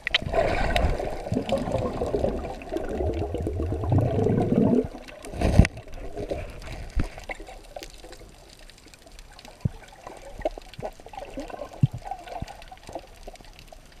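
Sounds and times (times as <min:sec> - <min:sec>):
muffled underwater water swishing: 0:00.0 - 0:14.0
low wash of water: 0:00.2 - 0:07.1.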